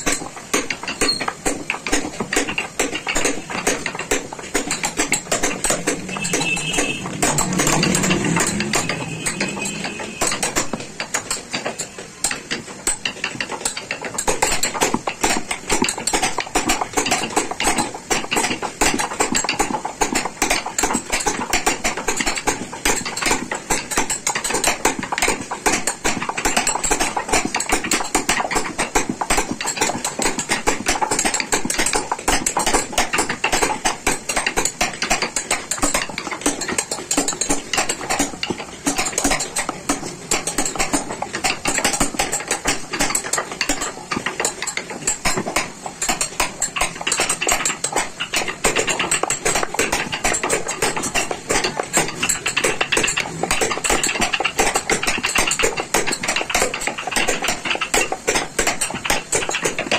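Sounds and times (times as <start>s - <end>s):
hammer tapping chisel into wood: 0.0s - 46.5s.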